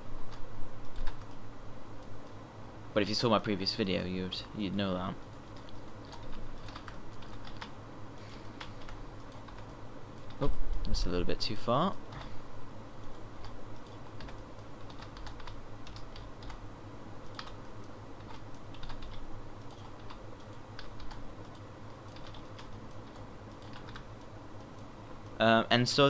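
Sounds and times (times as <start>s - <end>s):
faint low hum: 0.0s - 26.0s
keyboard keys tapping: 5.2s - 7.7s, 13.0s - 16.6s, 18.2s - 24.9s.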